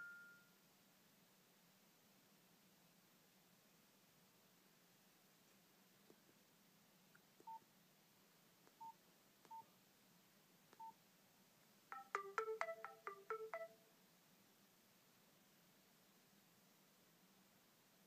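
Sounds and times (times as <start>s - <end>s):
phone alarm tone: 11.9s - 13.7s
phone keypad beeps: 11.9s - 13.8s.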